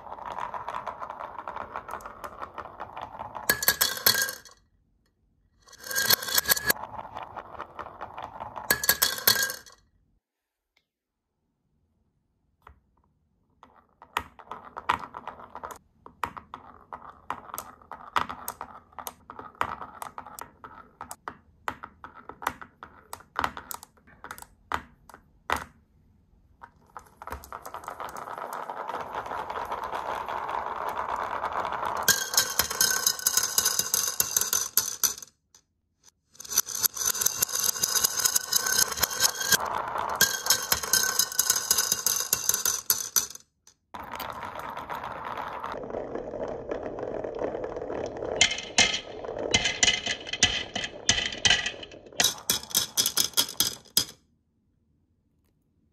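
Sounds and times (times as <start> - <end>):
marbles clattering into paper cup: 0.0 - 4.6, 5.7 - 9.8, 26.7 - 35.2, 36.1 - 43.4, 44.0 - 54.1
marbles rolling rumble: 0.0 - 4.6, 5.6 - 9.8, 13.6 - 15.8, 16.4 - 21.2, 26.8 - 35.2, 36.1 - 43.4, 44.0 - 54.1
marbles clicking onto wood: 5.7 - 6.8, 13.7 - 25.2, 26.8 - 35.3, 36.4 - 43.4, 44.0 - 54.2.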